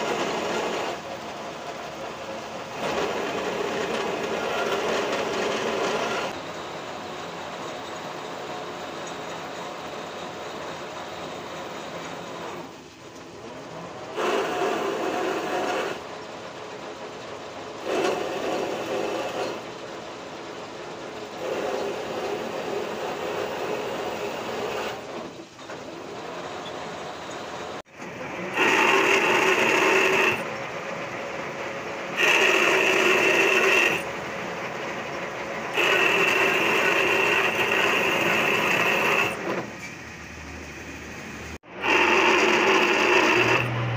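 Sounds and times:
lathe tool rasping cut: 0.0s - 1.0s, 2.7s - 6.4s, 14.1s - 16.1s, 17.8s - 19.7s, 21.4s - 25.1s, 28.2s - 30.6s, 31.8s - 34.3s, 35.0s - 39.7s, 41.6s - 43.9s
metal lathe humming: 0.0s - 16.7s, 17.7s - 43.9s.

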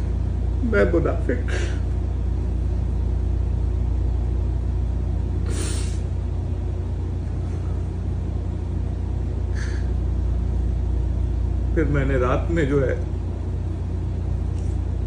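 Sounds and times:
steady low hum: 0.0s - 15.0s
man sniffing: 5.4s - 6.1s, 9.5s - 10.0s.

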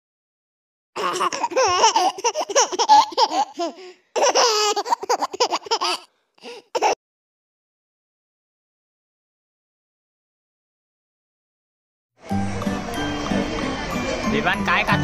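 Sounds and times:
baby laughing: 1.0s - 7.0s.

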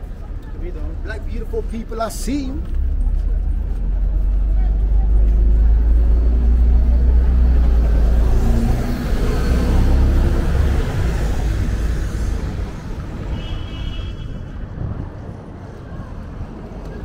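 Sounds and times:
vehicle passing with engine rumble: 0.0s - 13.4s.

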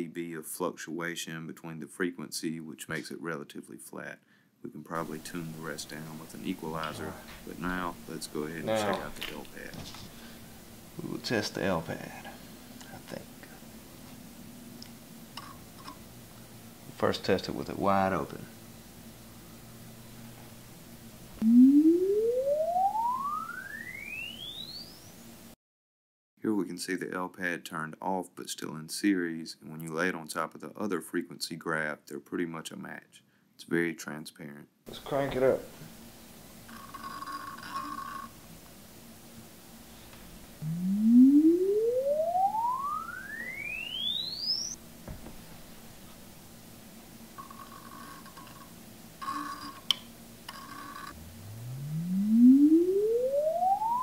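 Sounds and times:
rising sine sweep tone: 21.4s - 25.1s, 40.6s - 44.8s, 50.5s - 54.0s.

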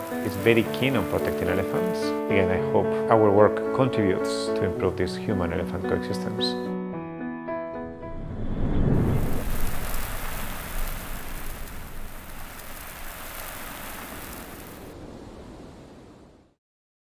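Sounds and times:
rain-like hiss: 0.0s - 2.3s, 9.0s - 16.6s
low rumble: 8.0s - 13.1s.

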